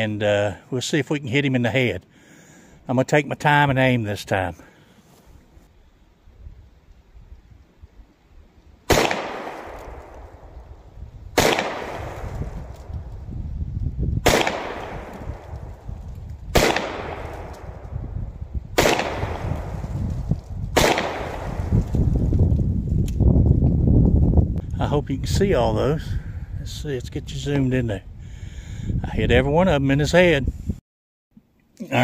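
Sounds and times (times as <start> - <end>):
revolver shots with echo: 11.4 - 12.3, 16.6 - 17.6.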